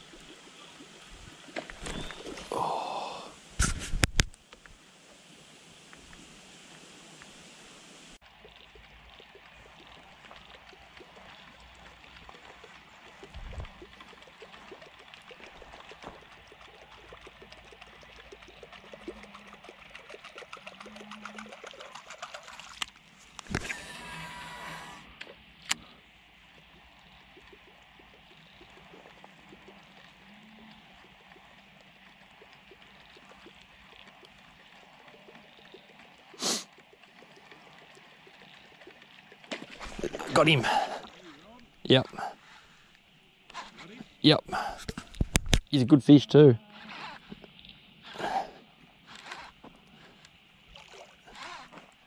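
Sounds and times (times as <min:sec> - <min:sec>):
water gurgling and trickling: 0:00.0 - 0:52.0
small ticks: 0:08.6 - 0:23.5, 0:26.6 - 0:39.6.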